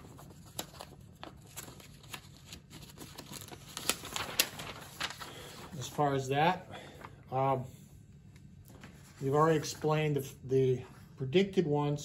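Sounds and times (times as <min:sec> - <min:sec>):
paper rustling and crackling: 0:00.0 - 0:07.2.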